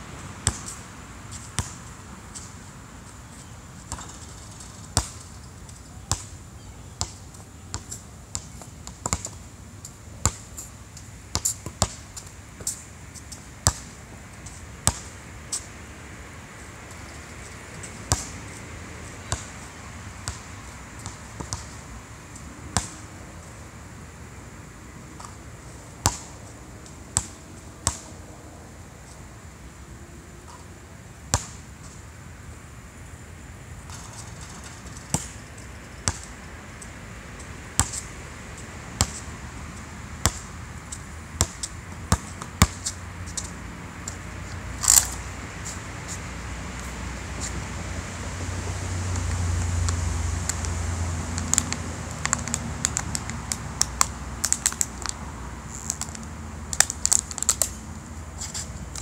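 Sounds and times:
basketball bouncing on asphalt: 0:00.4 - 0:02.5, 0:03.4 - 0:05.4, 0:06.0 - 0:06.3, 0:07.0 - 0:09.4, 0:10.2 - 0:10.5, 0:11.3 - 0:14.0, 0:14.8 - 0:15.2, 0:18.0 - 0:18.6, 0:19.2 - 0:19.6, 0:20.2 - 0:21.8, 0:22.7 - 0:23.1, 0:26.0 - 0:26.4, 0:27.2 - 0:28.1, 0:31.3 - 0:31.6, 0:33.9 - 0:36.3, 0:37.7 - 0:38.1, 0:38.9 - 0:39.3, 0:40.2 - 0:45.2, 0:48.5 - 0:57.7.

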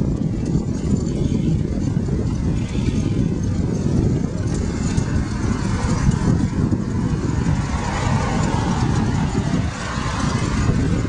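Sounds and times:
rumbling wind and road noise: 0:00.0 - 0:11.0.

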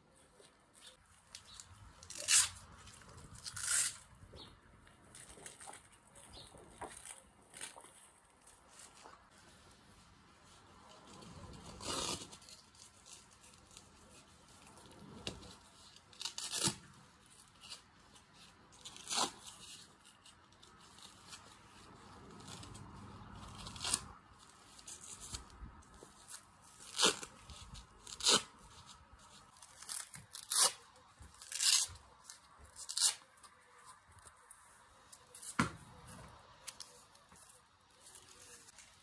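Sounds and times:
velcro straps tearing open: 0:00.3 - 0:04.4, 0:11.1 - 0:34.3.

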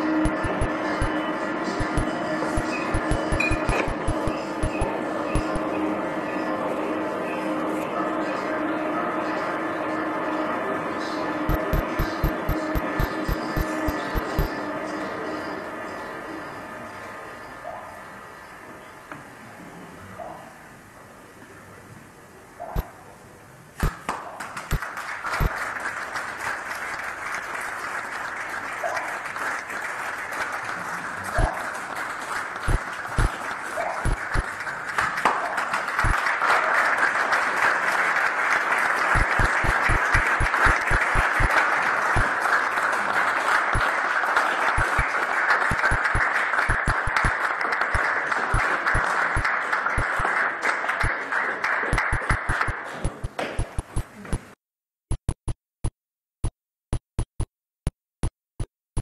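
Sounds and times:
audience applauding: 0:00.0 - 0:05.8, 0:11.5 - 0:15.2, 0:24.0 - 0:53.9
sharp digital clicks: 0:11.5 - 0:14.5, 0:55.1 - 0:57.5.

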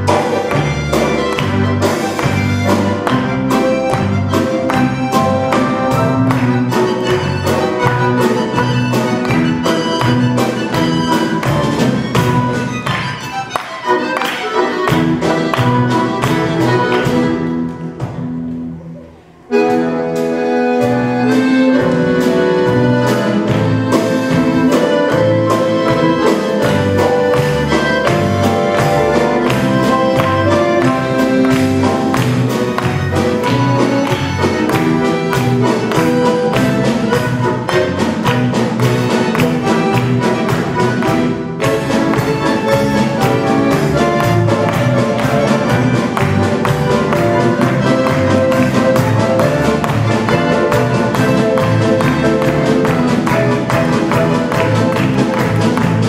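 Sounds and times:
harmonica: 0:00.0 - 0:18.1, 0:18.8 - 0:56.0
live band music: 0:00.0 - 0:56.0
drum beat: 0:21.7 - 0:56.0.

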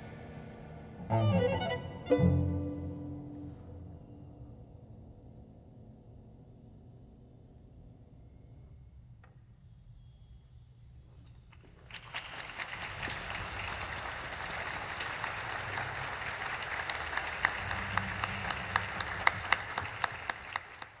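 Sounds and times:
audience applauding: 0:11.7 - 0:21.0.

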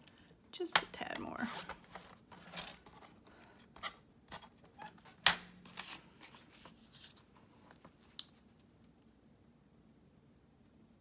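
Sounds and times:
paper rustling: 0:01.4 - 0:08.7.

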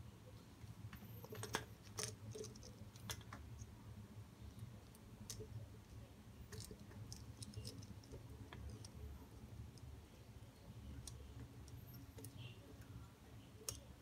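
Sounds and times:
faint low hum: 0:00.0 - 0:14.0
plastic parts clicking: 0:01.2 - 0:03.7, 0:06.5 - 0:09.0.

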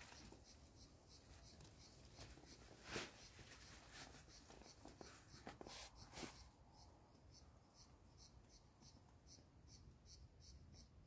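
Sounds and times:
scraping rustle: 0:01.6 - 0:06.5.

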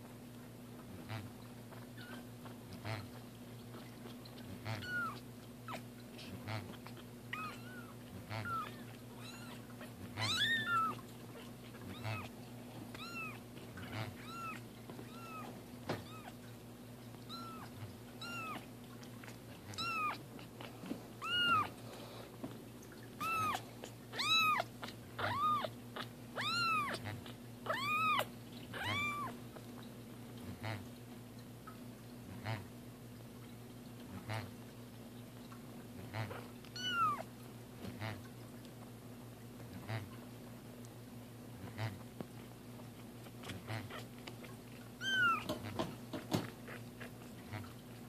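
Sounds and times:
kitten mewing: 0:01.1 - 0:16.5, 0:17.3 - 0:21.8, 0:23.2 - 0:29.4, 0:36.2 - 0:37.3, 0:43.2 - 0:47.8.

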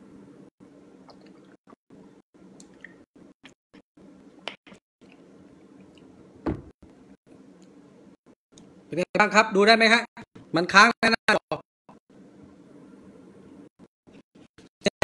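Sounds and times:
low room hum: 0:04.0 - 0:09.0, 0:12.0 - 0:14.5.

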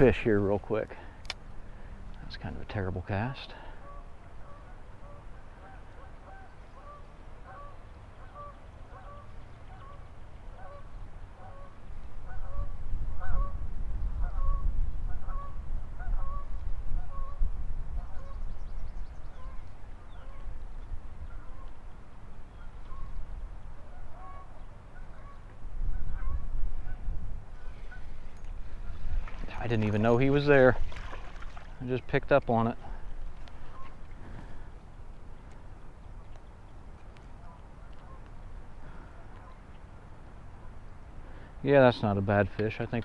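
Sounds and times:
geese honking: 0:03.8 - 0:13.6, 0:23.9 - 0:29.6, 0:33.6 - 0:34.0, 0:37.4 - 0:39.7
wind rumble on microphone: 0:10.6 - 0:31.8.

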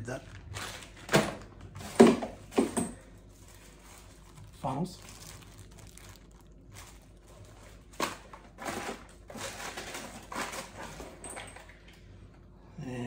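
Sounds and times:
plastic packaging crinkling: 0:00.0 - 0:01.9, 0:03.2 - 0:11.0.

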